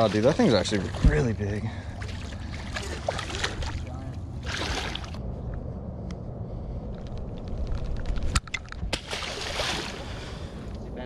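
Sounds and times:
water splashing against boat hull: 2.0s - 5.2s
wind rumble on microphone: 3.6s - 11.0s.

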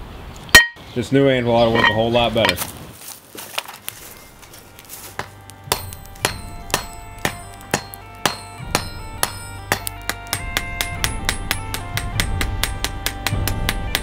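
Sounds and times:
hammer striking hot steel: 0.5s - 0.8s, 1.8s - 2.6s, 5.0s - 14.0s
music: 3.9s - 14.0s.

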